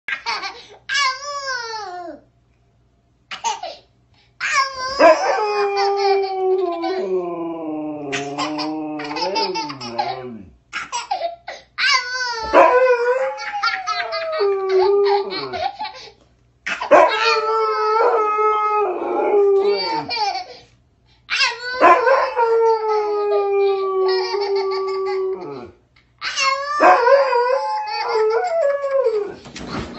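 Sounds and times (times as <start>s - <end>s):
dog howling: 4.9s - 10.5s, 12.4s - 15.6s, 16.9s - 20.2s, 21.8s - 25.8s, 26.7s - 29.4s
toddler laughing and squealing: 8.1s - 12.6s, 13.4s - 16.1s, 19.6s - 20.6s.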